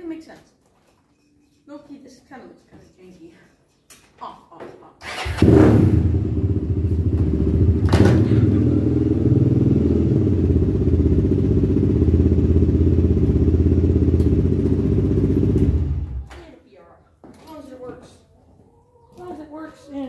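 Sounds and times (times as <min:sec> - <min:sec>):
atv engine running: 0:05.2 - 0:16.3.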